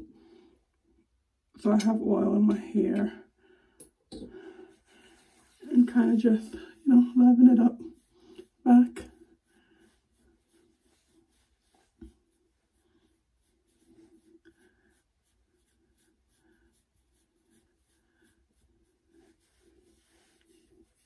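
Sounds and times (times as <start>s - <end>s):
fingertips rustling in hair: 4.7s - 6.9s.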